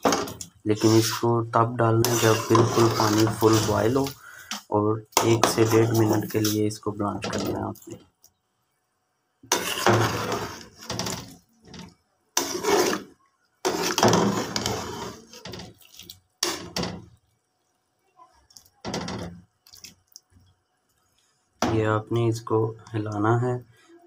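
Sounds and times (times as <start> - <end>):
metal spoon stirring in pot: 0.0 - 1.2, 2.0 - 6.6, 9.4 - 17.3.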